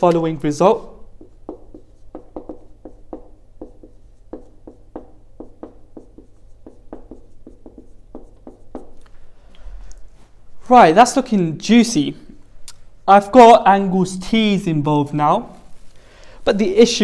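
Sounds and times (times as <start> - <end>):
marker writing on whiteboard: 0.0 - 9.0.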